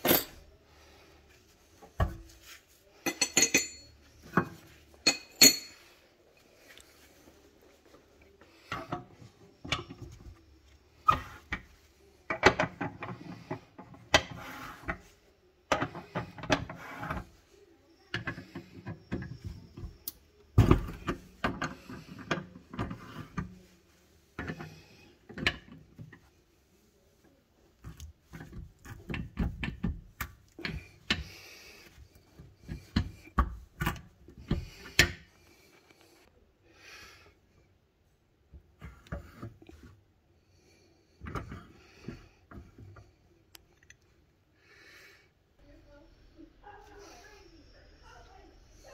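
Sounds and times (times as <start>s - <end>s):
metal tools clicking and scraping: 3.0s - 4.0s, 5.0s - 5.8s.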